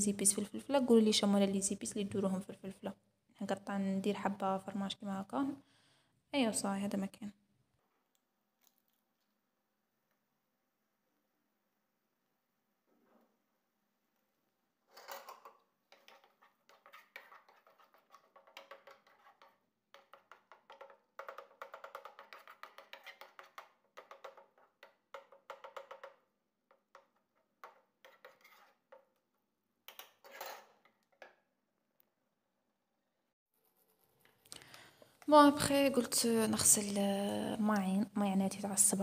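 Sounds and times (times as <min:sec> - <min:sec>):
wooden spoon scraping a pan: 0:14.9 - 0:24.7, 0:27.6 - 0:29.1.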